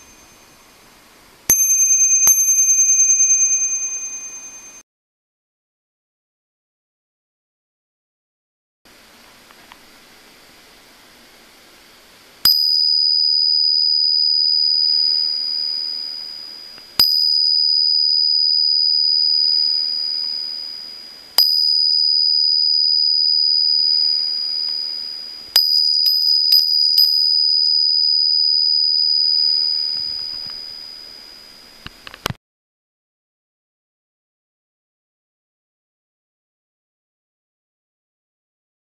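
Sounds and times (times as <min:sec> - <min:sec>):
bicycle bell dinging: 0:00.0 - 0:00.6, 0:01.5 - 0:04.8, 0:12.4 - 0:31.8.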